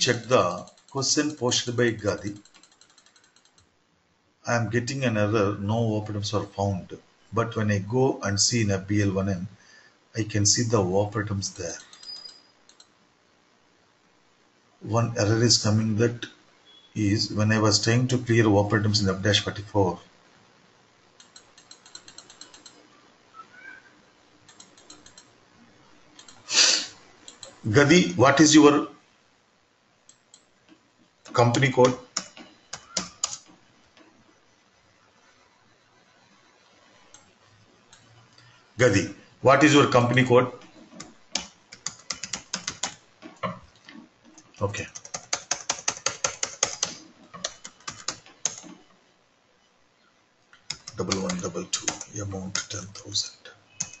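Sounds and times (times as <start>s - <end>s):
computer keyboard typing: 0.0s - 3.7s, 11.8s - 12.9s, 21.2s - 22.8s, 24.5s - 25.3s, 26.2s - 26.4s, 31.3s - 33.5s, 39.9s - 43.8s, 44.4s - 48.8s, 50.6s - 53.2s, 53.8s - 54.0s
rapid small clicks: 0.0s - 3.8s, 11.6s - 13.0s, 21.0s - 22.9s, 24.4s - 25.4s, 26.1s - 26.5s, 27.2s - 27.6s, 30.0s - 34.2s, 37.0s - 38.6s, 39.9s - 49.0s, 50.5s - 54.0s.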